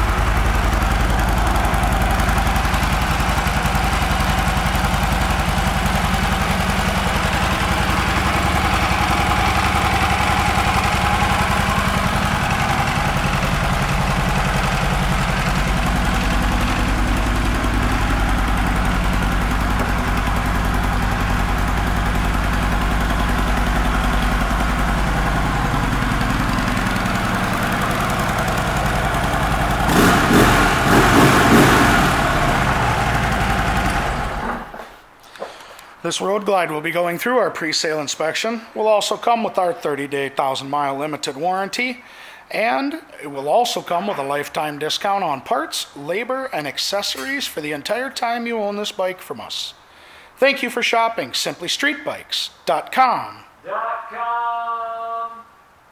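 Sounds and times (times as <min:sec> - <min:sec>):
motorcycle engine idling: 0:00.0 - 0:34.8
motorcycle engine revving: 0:00.0 - 0:34.8.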